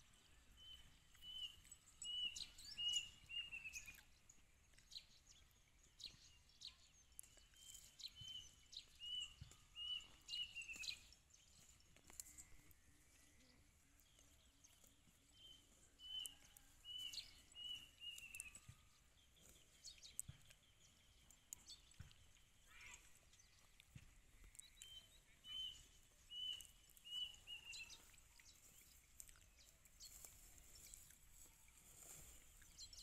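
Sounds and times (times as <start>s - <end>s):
small bird chirping and trilling: 0.6s - 33.0s
cow tearing and chewing grass: 7.0s - 20.8s, 23.2s - 33.0s.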